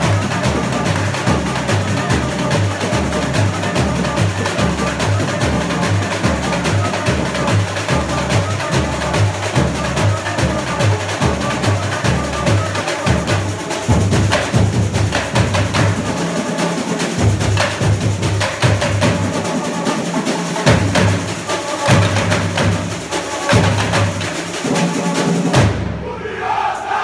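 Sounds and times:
snare and hand drums: 0:00.0 - 0:26.0.

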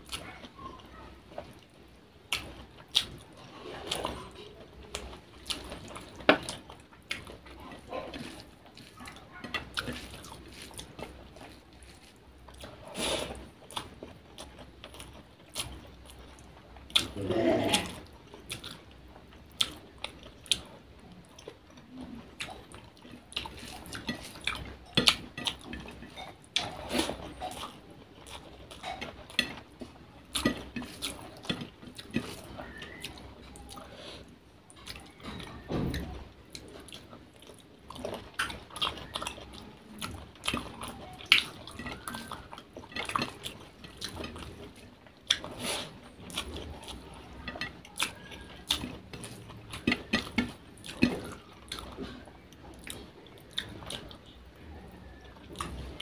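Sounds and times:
chewing food: 0:00.0 - 0:56.0.

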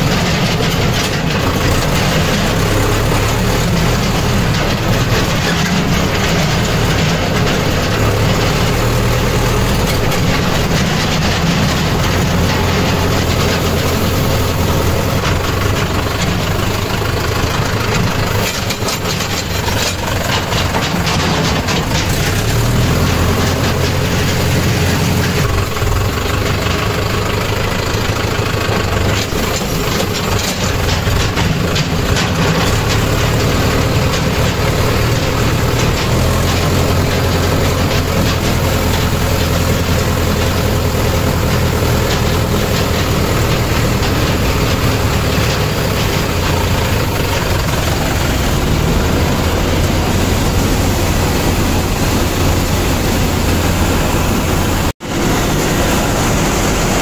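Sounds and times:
tractor engine running: 0:00.0 - 0:57.0.

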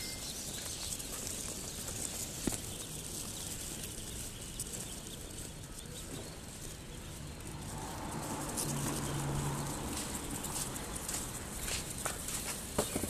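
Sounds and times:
ducklings peeping: 0:00.0 - 0:13.0.

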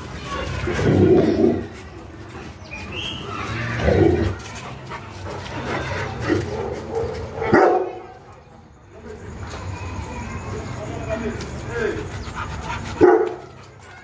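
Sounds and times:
dog barking: 0:06.5 - 0:08.2, 0:13.0 - 0:13.5.

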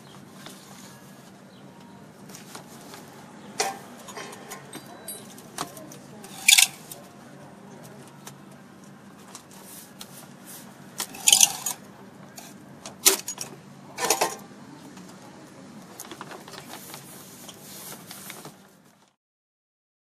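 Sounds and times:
plastic sheet rustling and crackling: 0:15.9 - 0:19.2
loud plastic crinkling bursts: 0:16.0 - 0:19.2.

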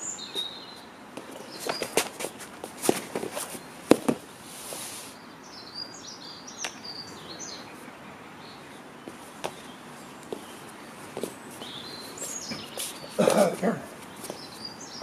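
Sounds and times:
birds chirping: 0:00.0 - 0:15.0
scuffs and clothing rustle: 0:01.2 - 0:05.1, 0:09.1 - 0:14.7.

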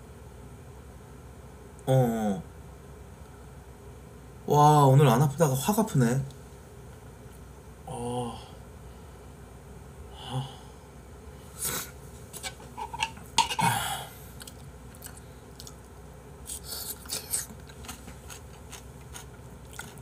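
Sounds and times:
metal spoon scraping bowl: 0:12.4 - 0:13.6
mouth sounds of eating: 0:13.6 - 0:20.0.

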